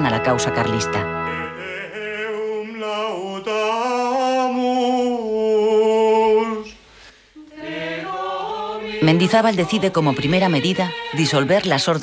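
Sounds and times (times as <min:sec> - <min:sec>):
voices singing a chant: 0:07.4 - 0:12.0.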